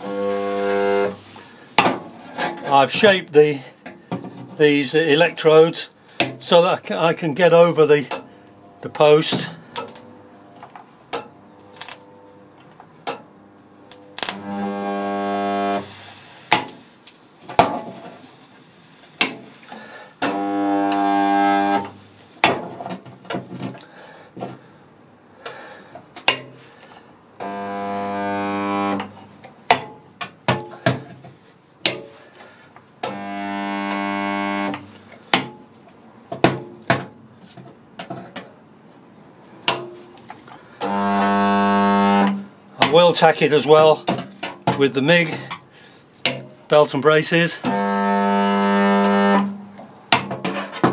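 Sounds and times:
spot welder electrical buzz: 0.0 - 1.6, 9.8 - 18.5, 20.2 - 22.4, 27.4 - 29.4, 33.0 - 35.1, 40.8 - 42.5, 47.6 - 49.7
welding tongs clicking and clanking: 11.1 - 13.3, 13.9 - 14.4, 15.8 - 20.4, 26.1 - 26.6.

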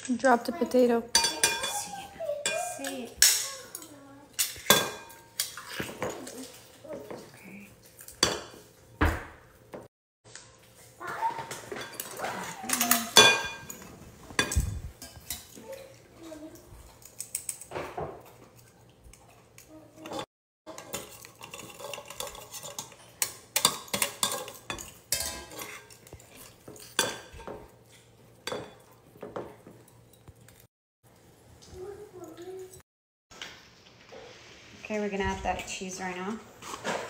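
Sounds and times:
metal utensils clinking on glass bowl: 1.1 - 7.2, 7.9 - 8.7, 11.5 - 16.4, 19.6 - 30.7.

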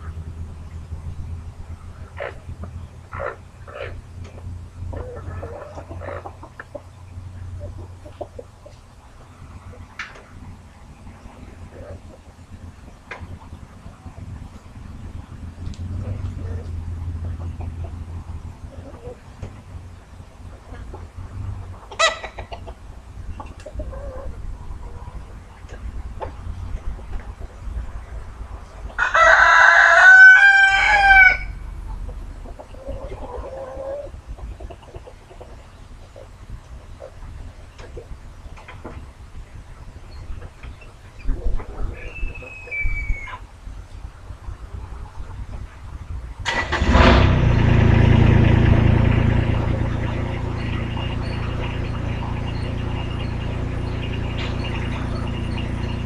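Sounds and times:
engine idling: 0.0 - 27.4, 46.4 - 56.0
rooster crowing: 29.0 - 31.6.

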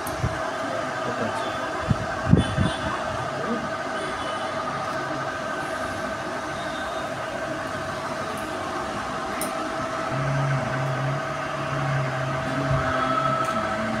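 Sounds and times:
machine hum: 0.0 - 14.0
lower drone: 5.1 - 14.0.

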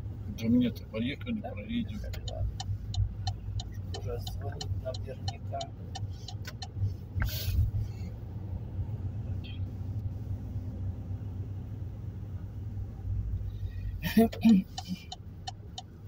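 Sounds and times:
car driving rumble from inside: 0.0 - 16.0
brief hiss: 7.2 - 7.7.

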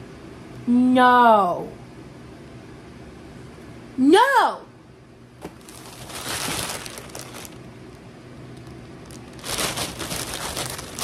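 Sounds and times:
plastic bag crinkling: 5.4 - 11.0.

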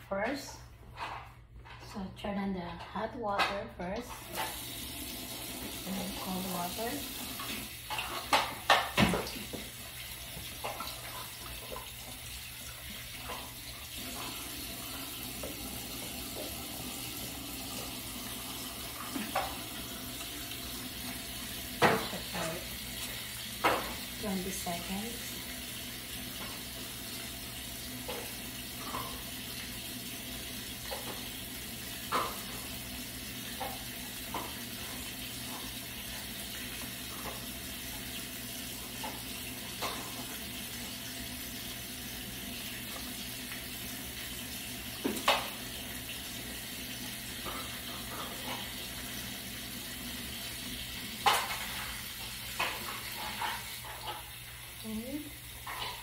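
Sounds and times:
faucet running into sink: 4.1 - 56.0.

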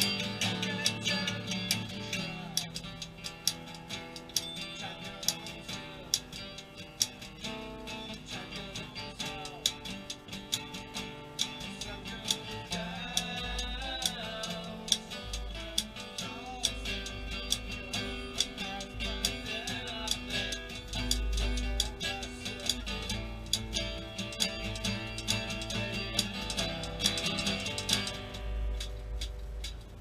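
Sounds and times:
person singing: 0.0 - 3.0, 8.0 - 10.0, 11.5 - 28.4
acoustic guitar strumming: 0.0 - 30.0.

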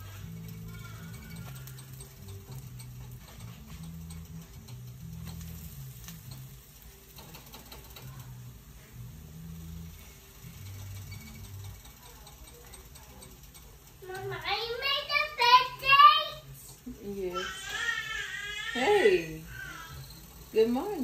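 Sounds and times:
spatula scraping and tapping pan: 0.0 - 8.4, 9.9 - 14.4
background music bass line: 0.0 - 11.9
eggs being stirred in a pan: 0.0 - 21.0
pancakes sizzling in a skillet: 0.0 - 21.0.

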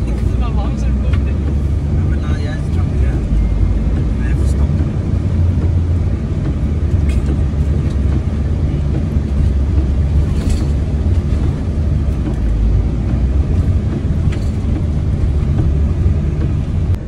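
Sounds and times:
vehicle engine and tyres rumbling: 0.0 - 17.0.

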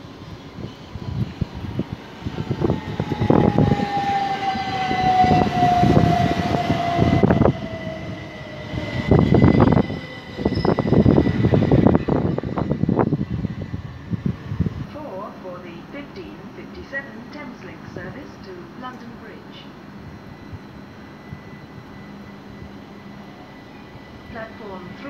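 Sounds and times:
train motor whine: 2.2 - 14.8.

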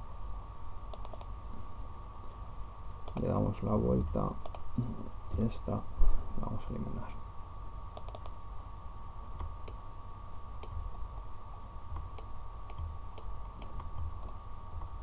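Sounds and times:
faint steady hum: 0.0 - 15.0
computer mouse clicks: 0.9 - 1.3, 3.0 - 3.3, 4.4 - 4.7, 7.9 - 8.4, 12.0 - 14.4.

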